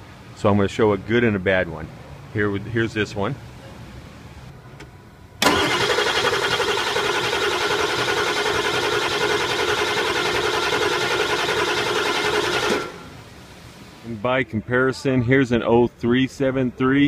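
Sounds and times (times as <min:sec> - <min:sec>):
diesel engine cranking on starter: 0:05.4 - 0:13.2.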